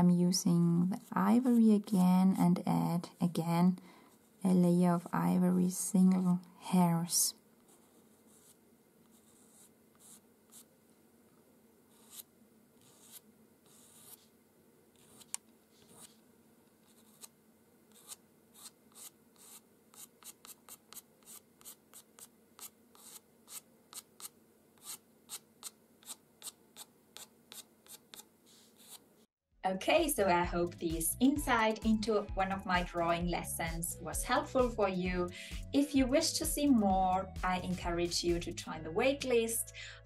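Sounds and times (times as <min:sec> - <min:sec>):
pencil scratching on paper: 0:07.6 - 0:10.7, 0:11.9 - 0:14.4, 0:15.0 - 0:16.2, 0:16.8 - 0:29.0.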